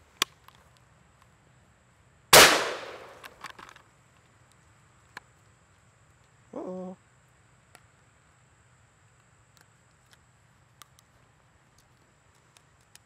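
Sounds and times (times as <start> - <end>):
shotgun shot echoing: 2.4 - 3.4
faint ticks: 9.1 - 13.0.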